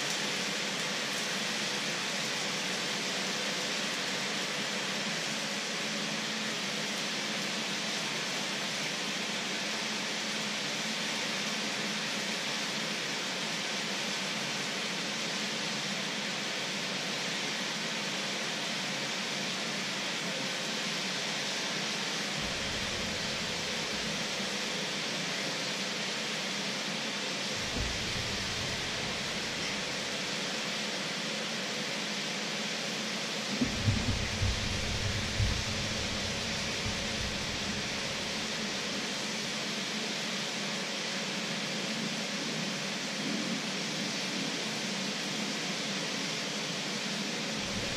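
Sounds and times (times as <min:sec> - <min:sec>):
water boiling hard: 0:22.0 - 0:31.4, 0:32.6 - 0:41.0, 0:47.5 - 0:47.9
low rumble: 0:22.4 - 0:24.3, 0:27.6 - 0:30.1, 0:33.6 - 0:38.7.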